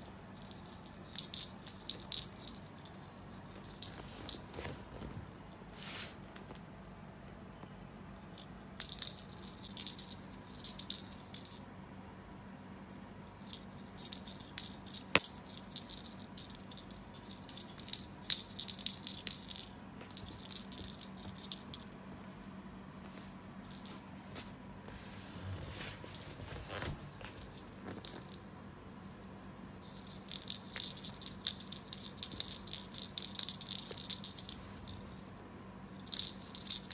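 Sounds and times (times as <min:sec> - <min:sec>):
small metal jingling: 0:00.0 - 0:04.8, 0:08.4 - 0:11.6, 0:13.3 - 0:21.9, 0:26.1 - 0:36.9.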